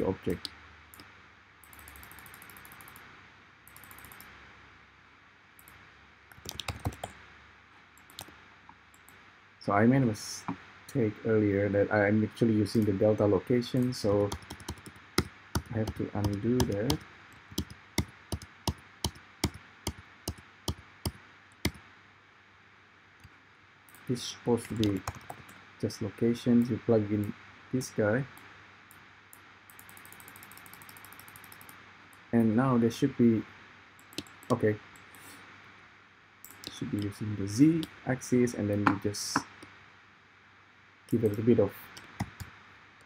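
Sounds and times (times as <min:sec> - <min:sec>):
rapid keyboard ticks: 0:03.7 - 0:04.3, 0:05.6 - 0:07.2, 0:13.7 - 0:21.8, 0:23.9 - 0:25.6, 0:29.7 - 0:31.8, 0:34.0 - 0:35.1, 0:41.1 - 0:42.5
mouse clicks: 0:34.0 - 0:35.2.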